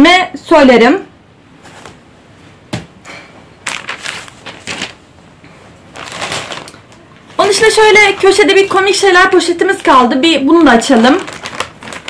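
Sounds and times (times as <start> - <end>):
plastic bags rustling: 3.6 - 12.0.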